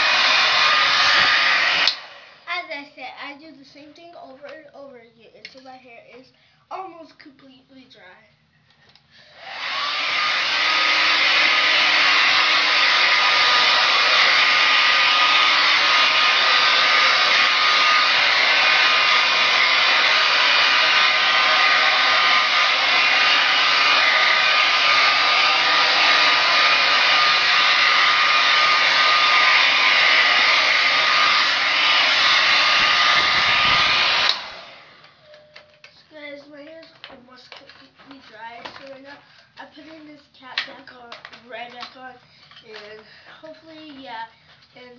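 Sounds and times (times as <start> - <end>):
hair dryer running: 0.0 - 2.5, 9.2 - 35.7.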